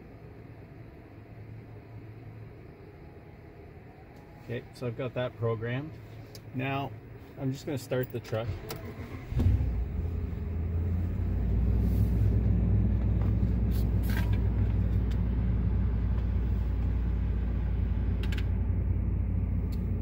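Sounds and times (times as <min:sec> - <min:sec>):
pickup truck engine starting and idling: 0:07.5 - 0:20.0.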